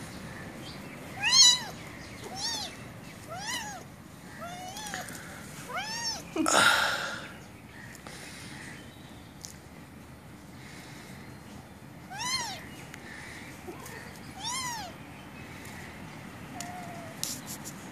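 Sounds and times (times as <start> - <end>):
kitten meowing: 1.2 - 5.0, 5.7 - 6.3, 12.1 - 12.6, 13.7 - 15.0, 16.6 - 17.2.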